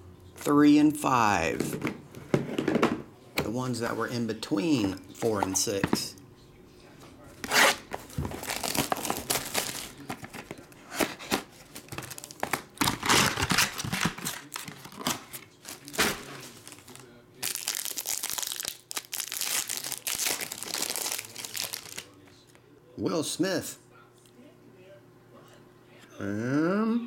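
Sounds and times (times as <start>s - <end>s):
foil wrapper tearing: 7.5s - 10.4s, 11.1s - 22.2s
shrink wrap crumpling: 7.8s - 22.4s.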